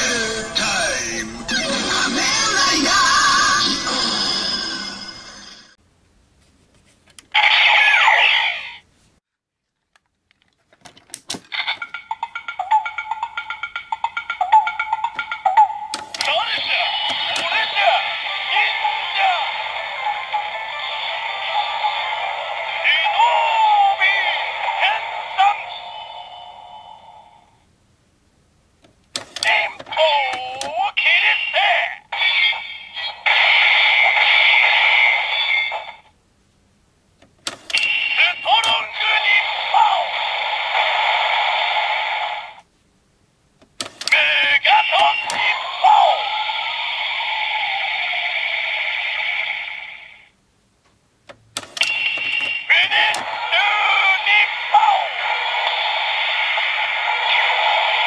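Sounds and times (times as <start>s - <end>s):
electronic standby loop with beat: 11.6s - 23.1s, 51.9s - 58.0s
hissing electronic toy sound effect: 16.2s - 27.3s, 37.8s - 42.6s, 44.0s - 50.3s, 52.1s - 58.0s.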